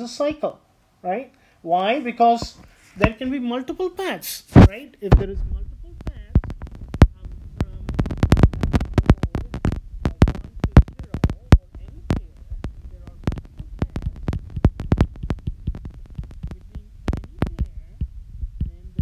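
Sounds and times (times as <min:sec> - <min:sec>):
stylus tapping on glass screen: 0:06.0 - 0:19.0.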